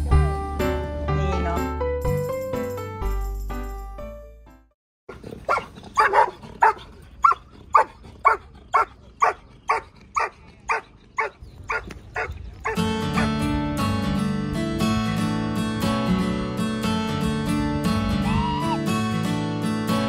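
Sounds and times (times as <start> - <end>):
dog barking rhythmically: 5.5 - 13.4
acoustic guitar music: 12.7 - 20.0.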